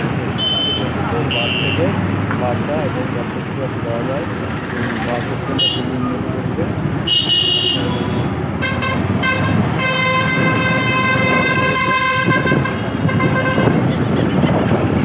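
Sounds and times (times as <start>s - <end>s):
road and engine rumble: 0.0s - 15.0s
vehicle horn tooting: 0.4s - 1.9s, 5.5s - 6.0s, 7.0s - 14.0s.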